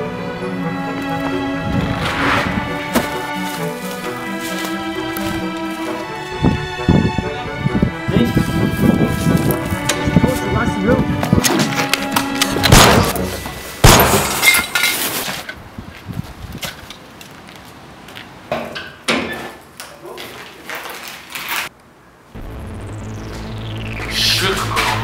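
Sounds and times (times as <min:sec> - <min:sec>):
gunshot sound effects: 0:12.7 - 0:13.2, 0:13.8 - 0:14.3
steady low hum: 0:22.4 - 0:25.0.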